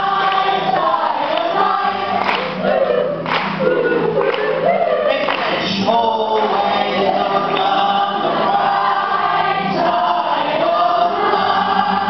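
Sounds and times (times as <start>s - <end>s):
ukulele: 0.0s - 12.0s
man singing: 4.9s - 9.0s, 9.6s - 12.0s.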